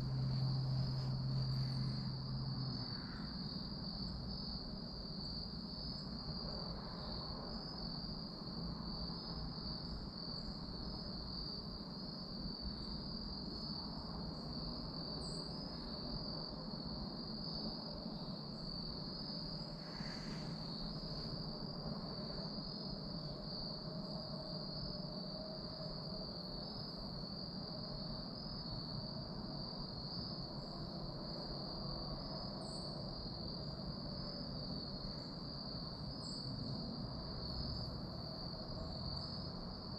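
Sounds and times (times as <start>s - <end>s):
faint low rumble: 0.0s - 7.6s
crickets trilling: 0.0s - 39.9s.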